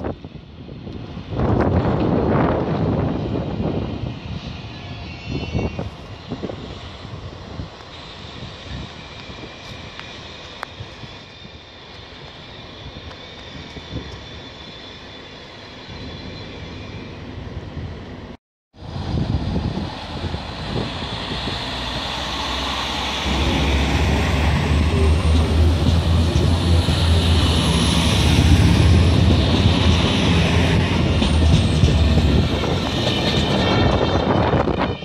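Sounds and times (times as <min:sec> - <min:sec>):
distant railway station ambience: 0:00.0 - 0:35.0
diesel train engines humming: 0:00.3 - 0:35.0
high whine: 0:20.2 - 0:35.0.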